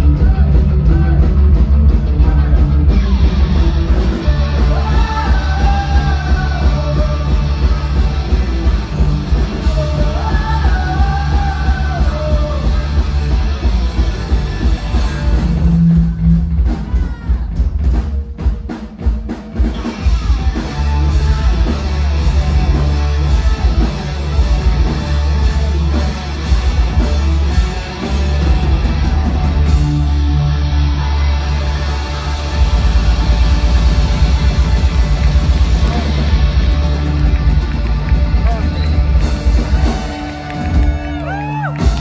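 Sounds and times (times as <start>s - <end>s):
rock band playing: 0.0s - 42.0s
person singing: 4.0s - 8.0s, 9.4s - 13.1s.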